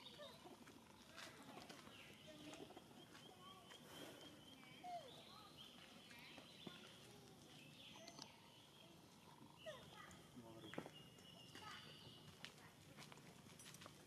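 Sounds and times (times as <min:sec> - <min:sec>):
faint animal chirps and calls: 0:07.6 - 0:10.2.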